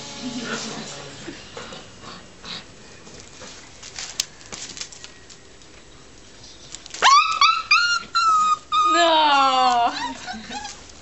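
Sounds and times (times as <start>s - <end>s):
puppy whining: 7.0s - 11.0s.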